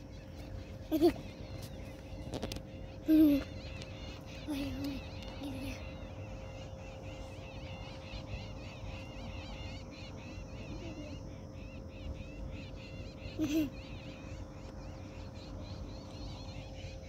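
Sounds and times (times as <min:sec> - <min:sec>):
wind rumble on microphone: 0:00.0 - 0:13.3
animals high chirps: 0:00.0 - 0:17.0
faint steady hum: 0:00.0 - 0:17.0
low wavering hoot-like call: 0:02.2 - 0:17.0.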